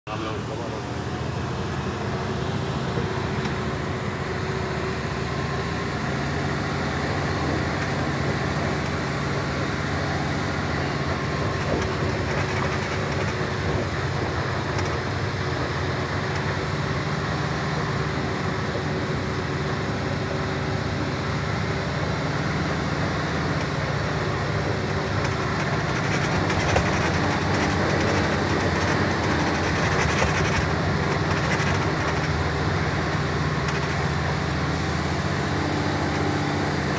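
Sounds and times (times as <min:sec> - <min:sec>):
truck diesel engine running: 0:00.1 - 0:36.9
tyre rumble on gravel road: 0:07.2 - 0:16.4, 0:24.4 - 0:34.1.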